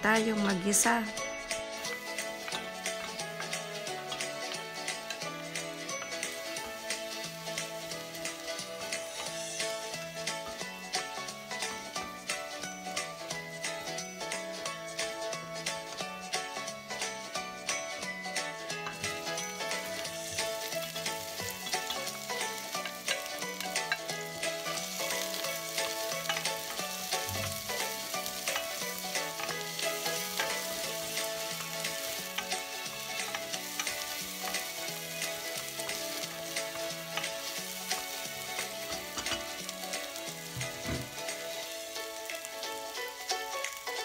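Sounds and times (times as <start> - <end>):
onion sizzling in hot oil: 0.0 - 44.0
quiet background music: 0.0 - 44.0
wooden spoon stirring in pot: 18.9 - 41.4.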